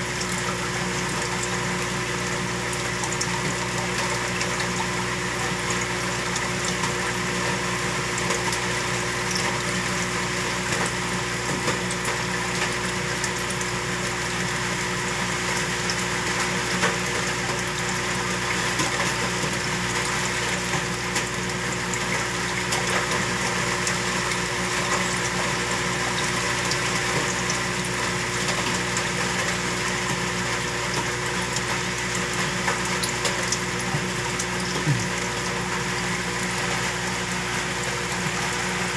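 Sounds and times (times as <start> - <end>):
water pump motor hum: 0.0 - 38.9
water rushing and bubbling: 19.2 - 38.9.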